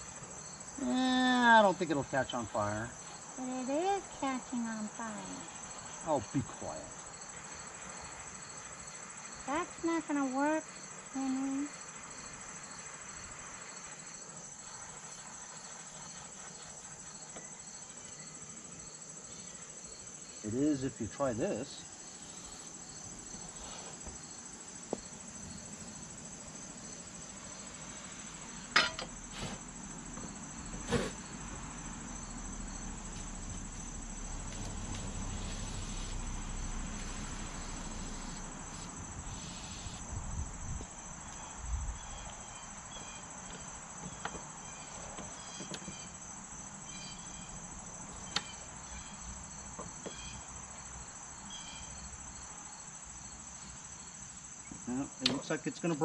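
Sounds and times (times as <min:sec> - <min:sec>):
insects chirring: 0:00.0 - 0:56.0
sharp metal knocks: 0:28.8 - 0:29.1
blowtorch flame roaring: 0:34.4 - 0:40.1.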